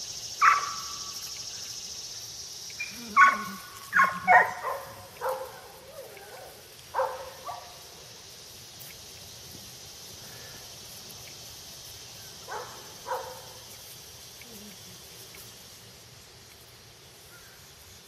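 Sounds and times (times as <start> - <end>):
high insect buzz: 0.0 - 18.0
dog barking: 0.4 - 1.0, 2.8 - 7.8, 12.5 - 13.6.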